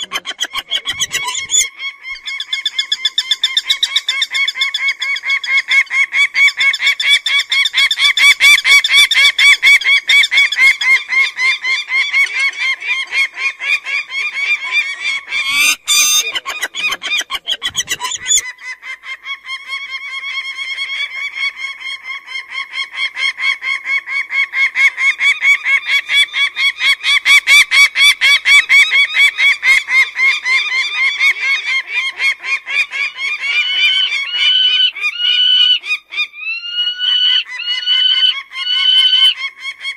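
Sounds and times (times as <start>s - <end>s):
falcon calling: 0.0s - 11.0s, 14.2s - 19.8s, 24.7s - 39.8s.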